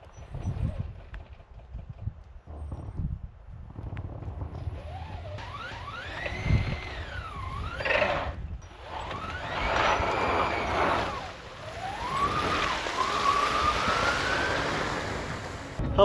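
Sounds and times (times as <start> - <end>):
electric motor whining: 4.6 - 15.8
tyres rushing through snow: 4.6 - 15.8.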